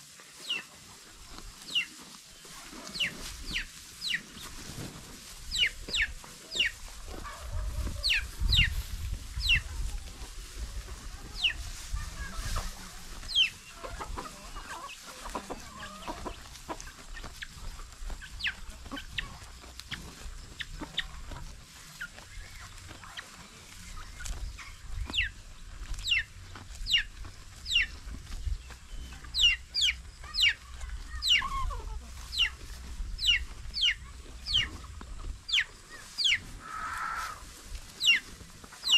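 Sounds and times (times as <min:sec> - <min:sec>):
birds chirping: 0:11.3 - 0:37.4.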